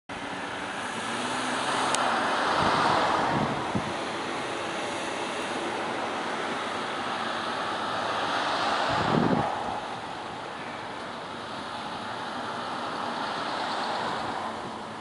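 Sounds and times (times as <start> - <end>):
road traffic noise: 0.1 - 15.0
vehicle passing by: 0.6 - 10.0.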